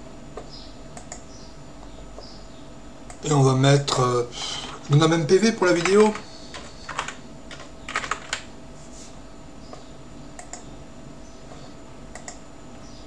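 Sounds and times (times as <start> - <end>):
faint steady hum: 0.0 - 13.0
computer keyboard key clicks: 12.1 - 12.4.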